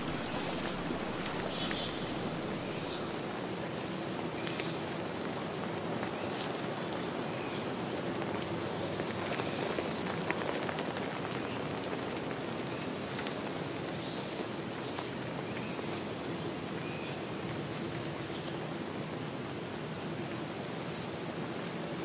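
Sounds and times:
faint bird chirps: 0.0s - 3.4s
stream rushing over rocks: 0.0s - 4.1s.

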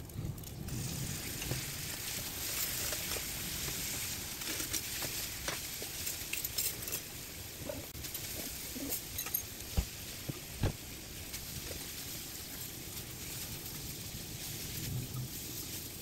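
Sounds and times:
meat sizzling in frying pan: 0.7s - 6.4s, 9.5s - 16.0s.

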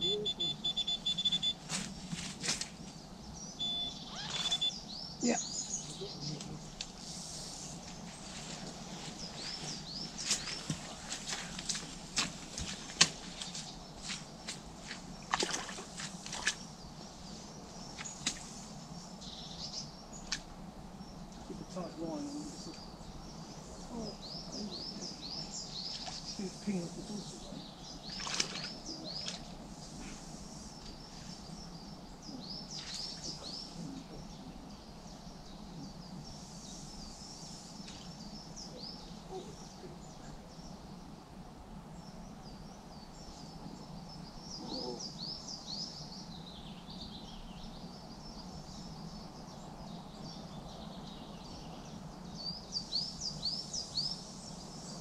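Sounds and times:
songbirds chirping: 0.0s - 55.0s
sharp rustle: 1.6s - 3.0s.

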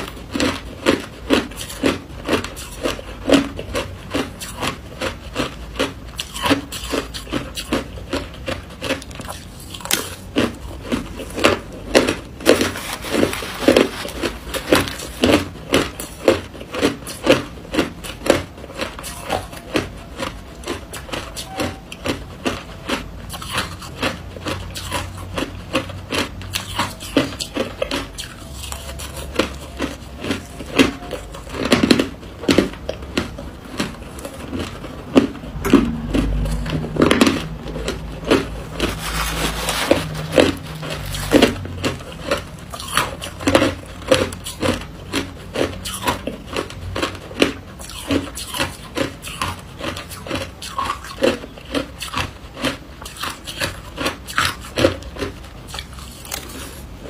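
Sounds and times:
ice being chewed: 0.0s - 57.0s.

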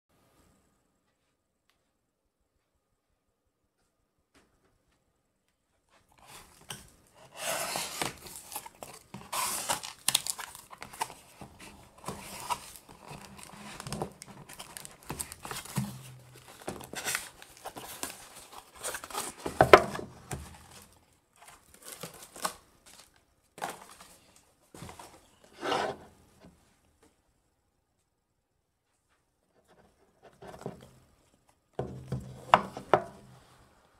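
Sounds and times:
box set on table: 6.2s - 23.0s, 24.8s - 26.2s, 31.8s - 33.8s
tape tearing: 6.3s - 19.6s.

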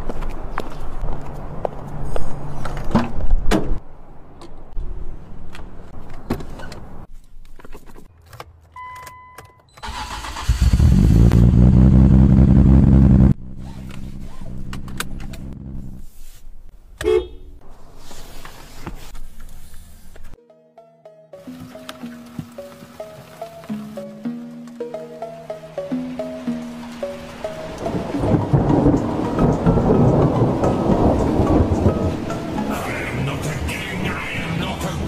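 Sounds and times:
engine starter cranking: 9.8s - 11.3s.

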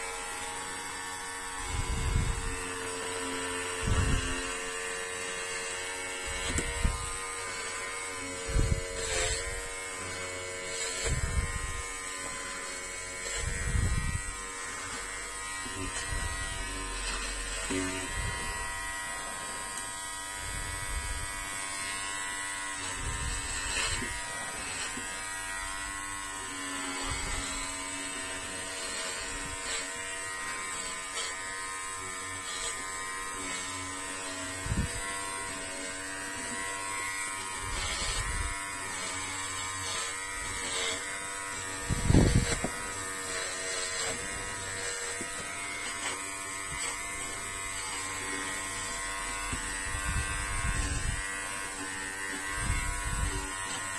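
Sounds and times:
electric hair clipper humming: 0.0s - 53.9s.

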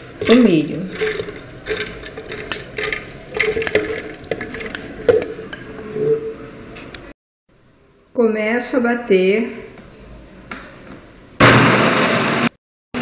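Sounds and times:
corn kernels dropping into water: 0.0s - 5.3s.

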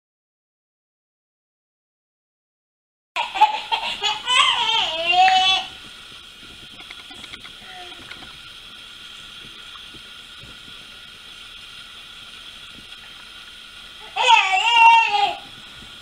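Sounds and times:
faint high-pitched hum: 3.2s - 16.0s
baby squealing: 14.0s - 15.4s.

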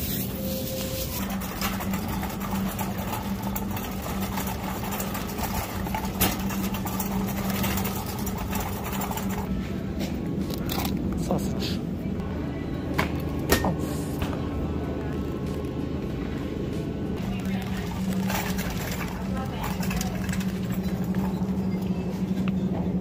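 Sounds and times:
shopping cart rattling: 0.0s - 9.5s, 17.2s - 22.4s.

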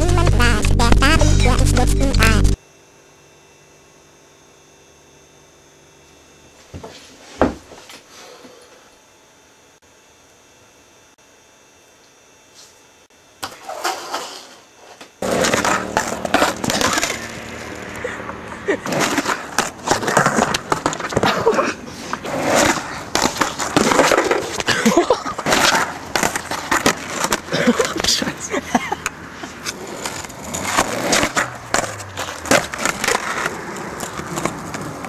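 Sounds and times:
skateboard wheels rolling on concrete: 13.4s - 35.0s.

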